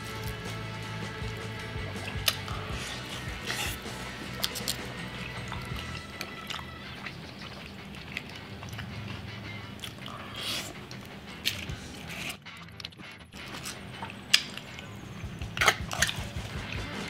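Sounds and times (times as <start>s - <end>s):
chewing crispy fried chicken: 0.0s - 17.0s.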